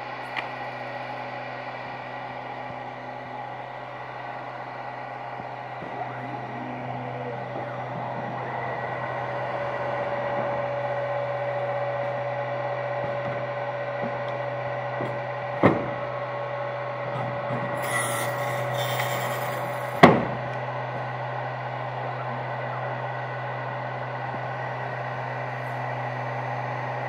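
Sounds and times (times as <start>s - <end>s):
machine humming and whining: 0.0s - 27.0s
short hiss of air: 17.8s - 19.7s.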